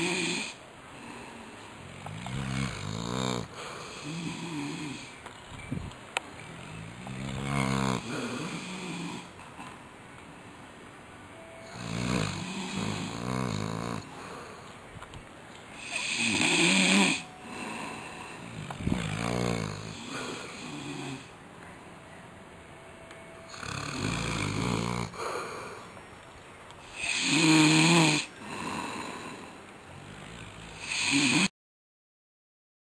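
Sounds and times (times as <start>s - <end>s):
man snoring: 0.0s - 5.1s, 6.6s - 9.3s, 11.7s - 14.5s, 15.8s - 21.3s, 23.5s - 25.8s, 26.8s - 31.5s.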